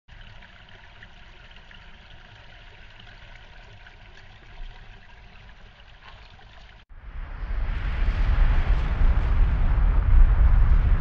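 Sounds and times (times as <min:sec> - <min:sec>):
creek trickling over stones: 0:00.1 - 0:06.9.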